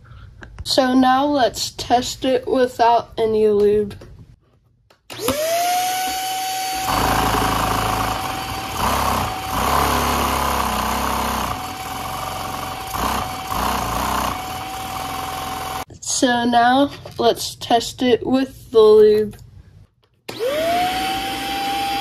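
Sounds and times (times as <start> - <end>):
handheld vacuum cleaner whining: 5.1 - 15.9, 20.3 - 22.0.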